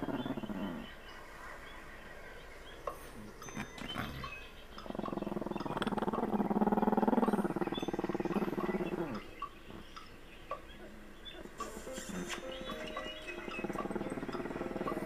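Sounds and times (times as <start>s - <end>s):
dog growling: 0.0s - 1.0s, 3.6s - 9.3s, 13.6s - 15.0s.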